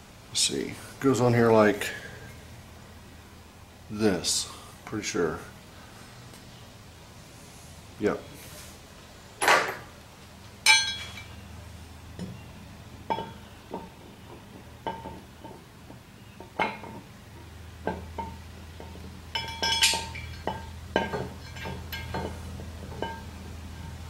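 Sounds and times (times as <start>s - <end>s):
steady low hum: 0.0s - 24.0s
metal clinking and knocking: 10.6s - 11.3s, 13.1s - 24.0s.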